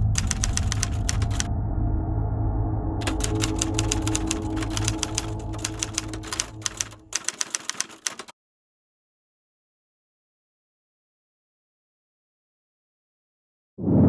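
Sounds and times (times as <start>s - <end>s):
typewriter keys clacking: 0.0s - 1.5s, 3.0s - 8.3s
low steady hum: 0.0s - 7.1s.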